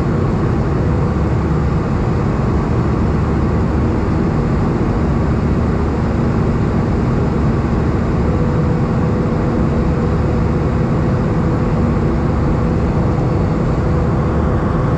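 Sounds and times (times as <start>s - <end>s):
jet engine and airflow rush: 0.0s - 14.9s
higher hum: 11.4s - 14.9s.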